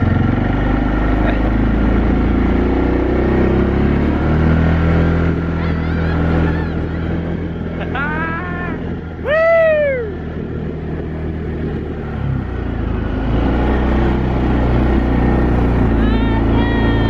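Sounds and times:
quad bike engine running: 0.0s - 17.0s
person shouting: 5.4s - 10.2s, 15.9s - 17.0s
man whooping: 5.5s - 10.3s, 16.0s - 17.0s.

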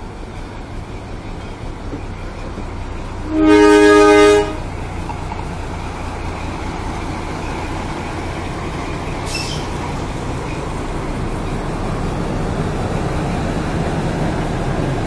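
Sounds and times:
diesel locomotive engine running: 0.0s - 15.0s
locomotive horn blast: 3.2s - 4.8s.

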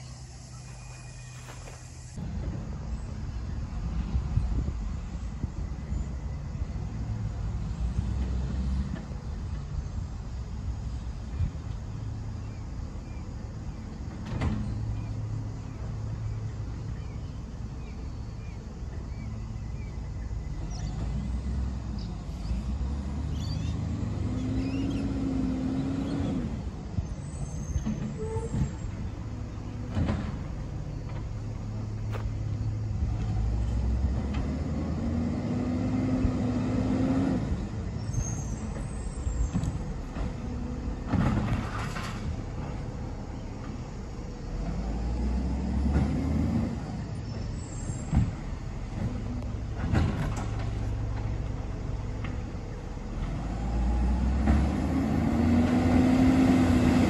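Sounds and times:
hydraulic whine: 26.0s - 34.4s
garbage truck engine revving: 29.9s - 42.8s, 44.0s - 57.0s.

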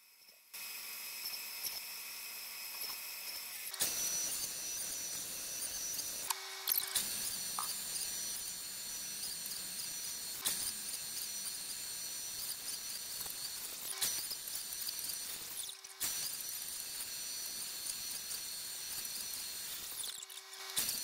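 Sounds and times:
bandsaw whining: 0.6s - 21.0s.

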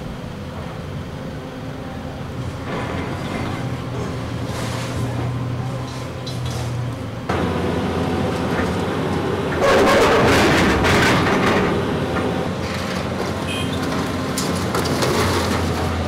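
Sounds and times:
excavator diesel engine running: 0.0s - 16.0s
concrete rubble crashing down: 9.6s - 11.8s
knocks of debris: 9.6s - 11.8s.

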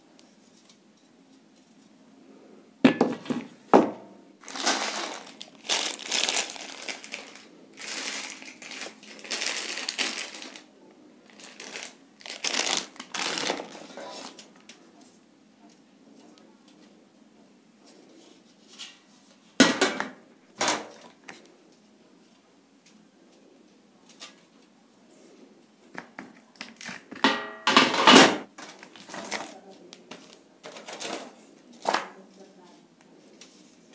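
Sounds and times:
bolts clinking in plastic bag: 4.4s - 10.6s, 11.3s - 14.3s.

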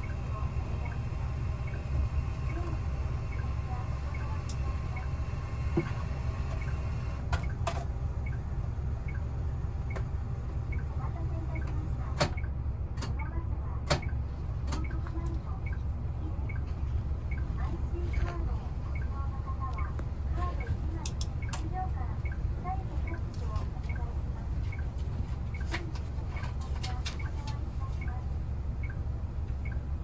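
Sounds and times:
indicator ticking: 0.0s - 5.2s, 9.0s - 10.1s, 10.7s - 12.6s, 14.8s - 16.7s, 17.3s - 17.5s, 18.1s - 24.1s, 28.8s - 29.0s, 29.6s - 29.9s
bus engine idling: 0.0s - 7.3s.

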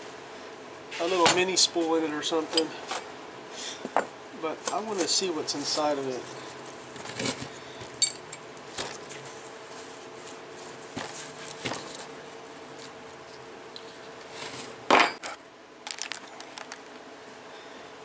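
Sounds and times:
metal tools clinking: 8.0s - 8.4s.

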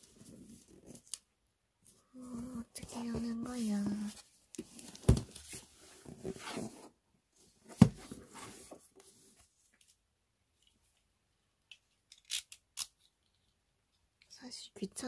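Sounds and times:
cardboard scraping and rustling: 2.9s - 7.0s, 7.6s - 9.0s.

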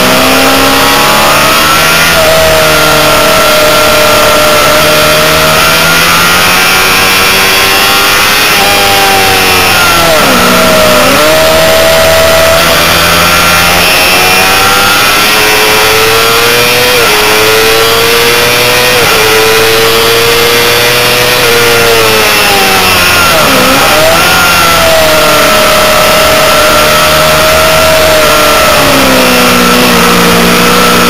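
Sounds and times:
motorcycle engine high revving: 0.0s - 31.0s.

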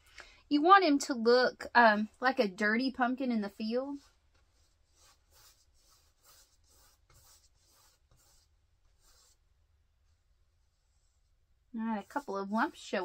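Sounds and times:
scratchy brush strokes on canvas: 3.0s - 13.0s.

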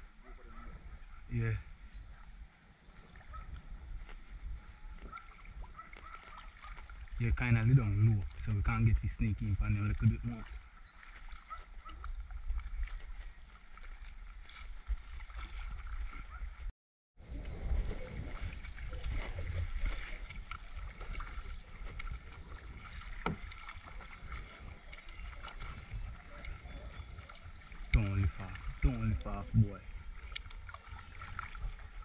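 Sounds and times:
low rumble of water and wind: 0.0s - 32.0s
kayak paddle strokes: 2.1s - 8.8s, 9.7s - 32.0s.

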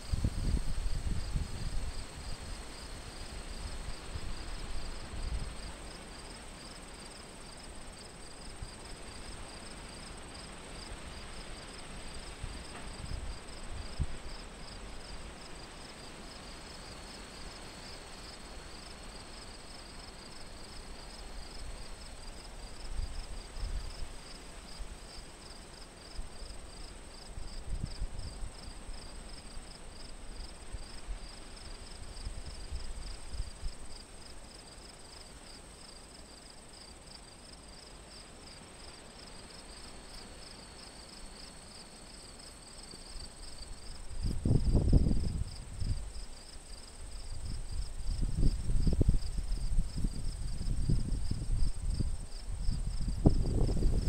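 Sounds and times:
wind rumbling on microphone: 0.0s - 5.7s, 44.0s - 46.3s, 47.2s - 54.0s.

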